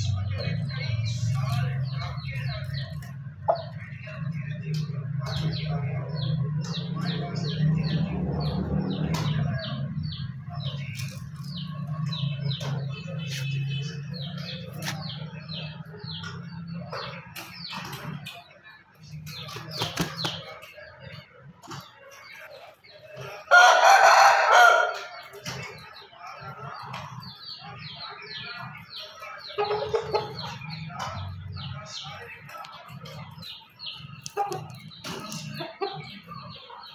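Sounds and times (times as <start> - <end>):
small birds chirping: 0.0 - 36.9
rooster crowing: 23.5 - 25.1.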